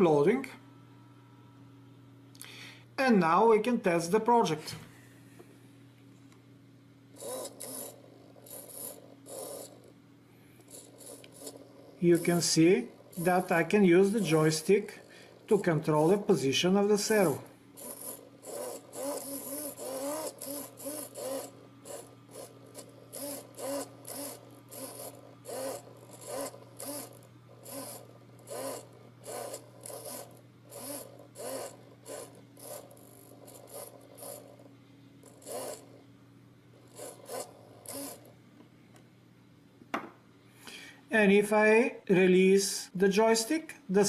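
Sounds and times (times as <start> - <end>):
servo motor whirring: 7.2 - 9.8, 10.7 - 14.8, 17.2 - 34.5, 35.3 - 35.9, 36.9 - 38.3.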